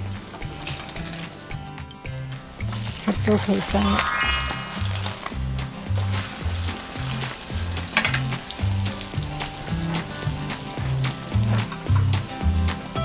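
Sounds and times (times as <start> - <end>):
background music with bass line: 0.0 - 13.0
omelette sizzling in oil: 2.6 - 13.0.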